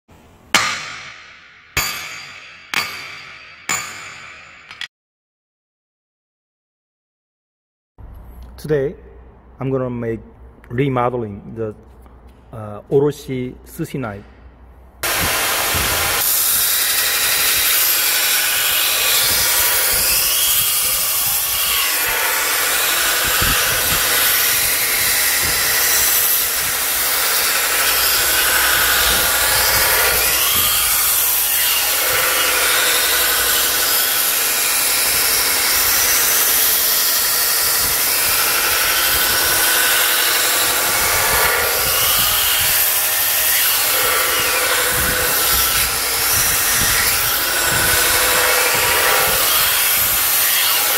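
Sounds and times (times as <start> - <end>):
belt grinder grinding steel blade: 15.0 - 50.9.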